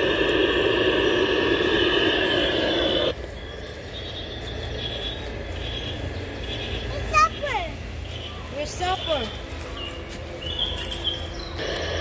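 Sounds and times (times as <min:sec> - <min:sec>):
buzzing drone over loudspeaker: 0:00.0 - 0:03.2, 0:11.6 - 0:12.0
outdoor background: 0:00.0 - 0:12.0.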